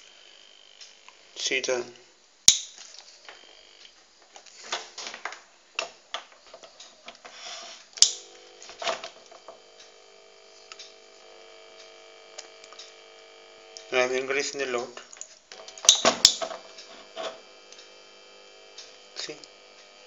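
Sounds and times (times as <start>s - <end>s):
jigsaw motor humming: 0.0s - 1.5s, 3.0s - 4.0s, 7.4s - 20.0s
switch clicking: 2.5s - 2.8s, 8.0s - 11.0s, 15.2s - 18.0s
scattered clicks and knocks: 14.8s - 17.9s.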